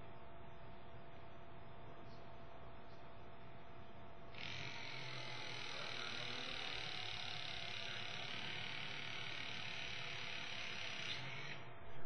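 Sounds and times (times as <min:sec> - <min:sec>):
hydraulic tool motor and pump: 0:04.4 - 0:11.7.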